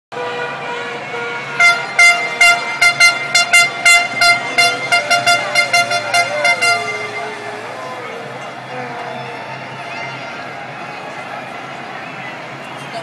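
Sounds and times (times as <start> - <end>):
held horn tone: 0.1 - 10.4
horns honking short blasts: 0.1 - 10.4.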